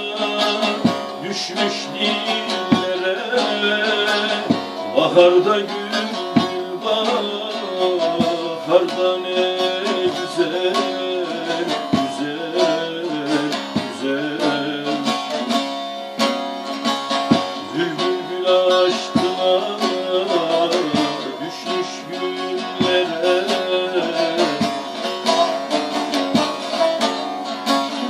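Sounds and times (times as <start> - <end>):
long-necked lute folk melody: 0.0 - 28.0.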